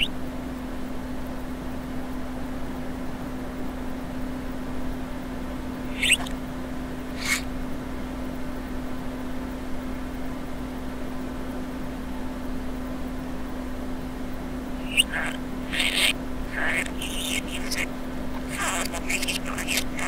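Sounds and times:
budgerigar chatter played backwards: 0:05.9 - 0:06.3, 0:07.2 - 0:07.4, 0:14.8 - 0:20.0.

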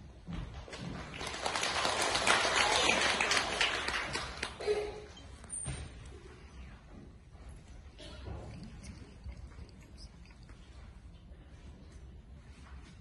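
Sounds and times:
audience applauding: 0:01.0 - 0:04.7.

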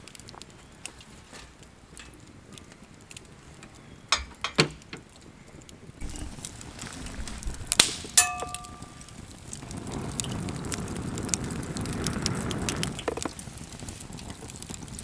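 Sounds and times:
wood fire crackling: 0:00.0 - 0:15.0
sharp metallic clink: 0:08.2 - 0:09.1.

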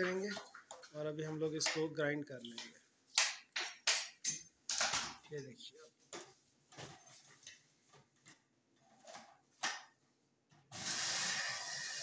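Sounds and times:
electric blender running: 0:10.8 - 0:12.0.

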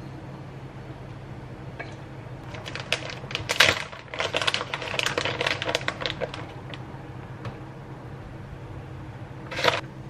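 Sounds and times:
plastic bag crinkling: 0:02.4 - 0:06.8.

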